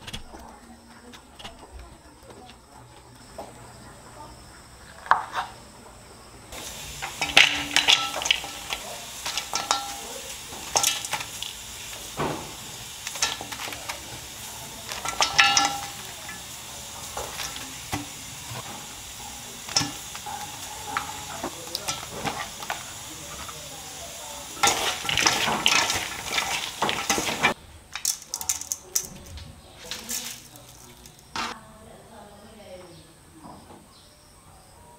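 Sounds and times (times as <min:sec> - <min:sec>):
metal spoon scooping fruit: 0:06.5 - 0:31.6
vegetables tossed in metal bowl: 0:06.5 - 0:31.6.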